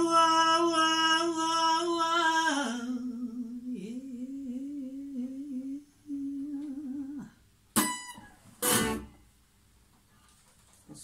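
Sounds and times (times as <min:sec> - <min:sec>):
electric guitar chords strummed: 0:07.8 - 0:09.2.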